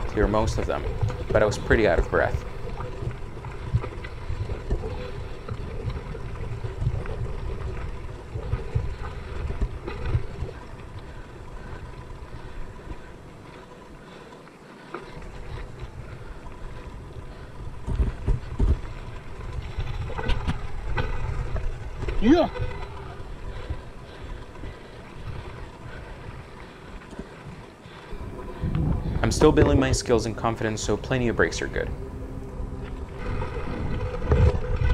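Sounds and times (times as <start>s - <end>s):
wind and tyre rumble: 0.0s - 34.9s
wheels knocking on rocks: 15.1s - 31.9s.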